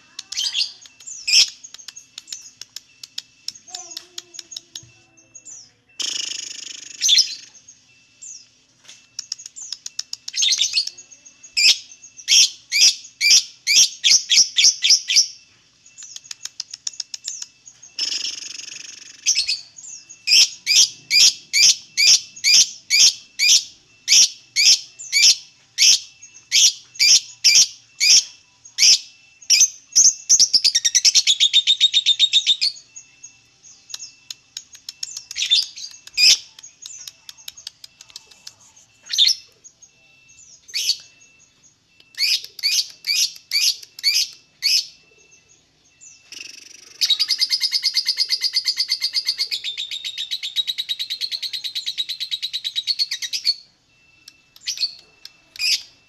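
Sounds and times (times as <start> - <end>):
lovebird chattering trill: 0.0 - 7.5
lovebird chirping: 0.0 - 56.0.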